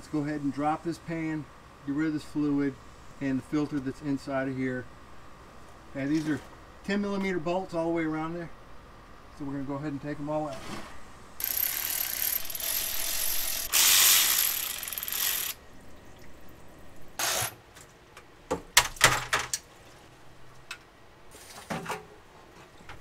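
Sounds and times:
ratchet turning bolts: 11.4s - 15.6s, 17.2s - 17.5s
fluid draining: 15.4s - 17.2s.

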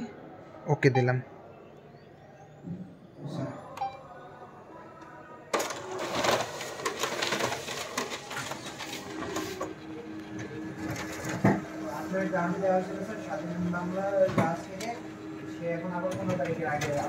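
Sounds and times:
copier whirring and clattering: 5.5s - 17.0s.

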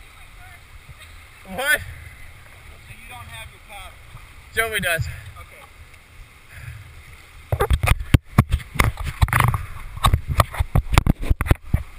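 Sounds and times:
river water: 0.0s - 11.9s
knocks and scrapes on helmet camera: 7.5s - 11.9s.

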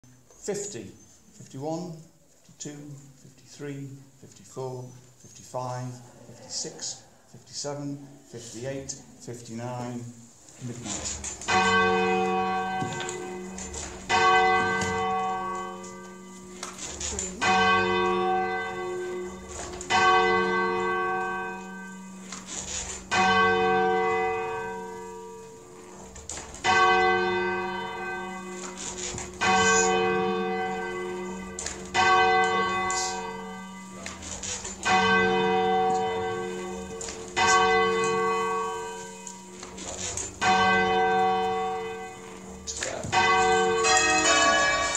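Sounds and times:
church bells ringing: 10.8s - 44.9s.

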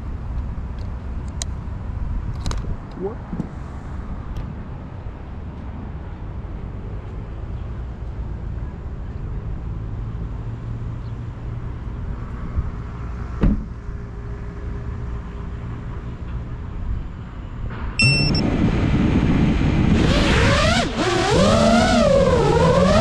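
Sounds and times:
thump: 13.4s - 13.8s
low outdoor rumble: 13.5s - 20.6s
high pitched bending tones: 18.0s - 18.4s.

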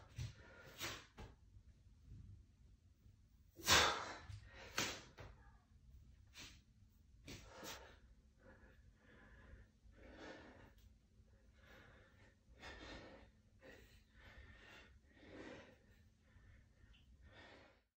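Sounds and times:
man breathing: 7.3s - 17.9s.

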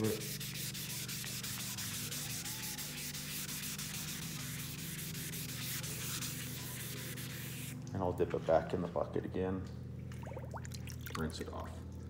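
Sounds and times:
wet sanding on metal: 0.0s - 7.8s
steady low hum: 0.0s - 12.0s.

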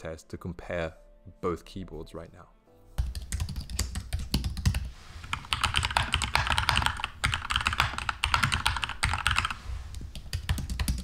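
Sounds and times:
keyboard keys clicking: 3.0s - 11.0s.

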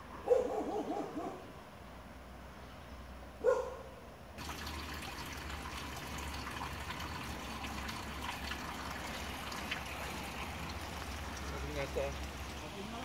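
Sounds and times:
spring water trickling: 4.4s - 13.0s.

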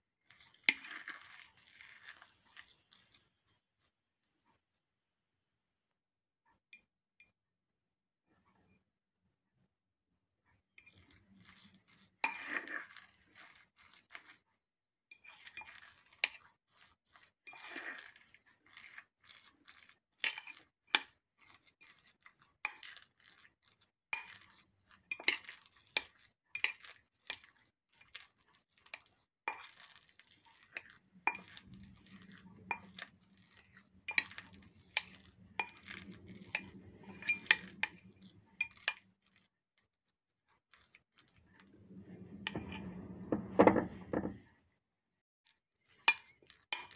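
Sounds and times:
metal utensil clinking on glass bowl: 20.2s - 21.2s, 30.6s - 38.0s, 46.0s - 46.9s.

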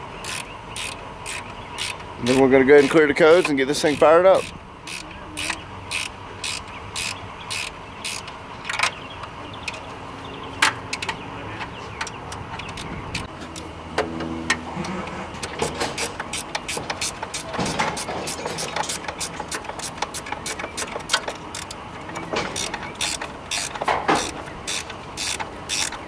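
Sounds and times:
ratchet wrench clicking: 0.2s - 2.0s, 2.8s - 8.8s, 16.0s - 21.8s, 22.5s - 26.0s.

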